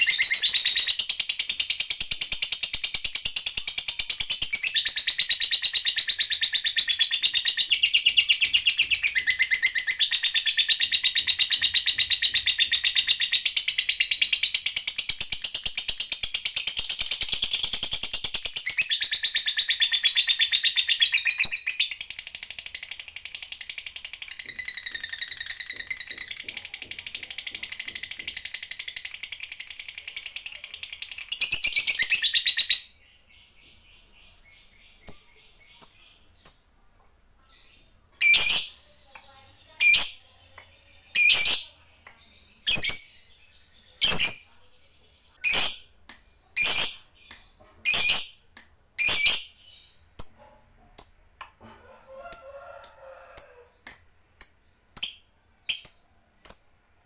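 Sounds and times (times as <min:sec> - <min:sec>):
bird sharp chirps: 0:37.4 - 0:51.2
lovebird chattering trill: 0:41.0 - 0:41.8, 0:45.4 - 0:45.9, 0:46.5 - 0:50.4.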